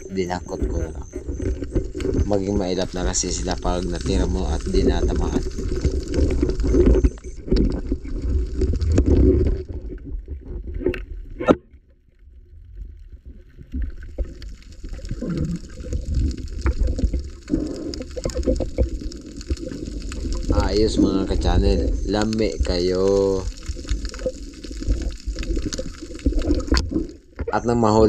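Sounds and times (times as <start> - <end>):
water churning underwater: 0.0 - 28.0.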